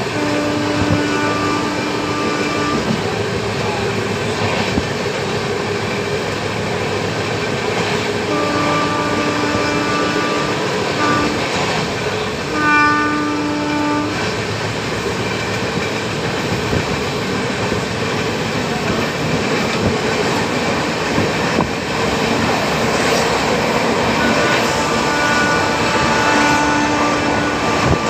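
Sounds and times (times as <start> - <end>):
train horn: 0.0 - 4.0, 8.0 - 14.6, 22.9 - 28.0
train wheels on rails: 0.0 - 28.0.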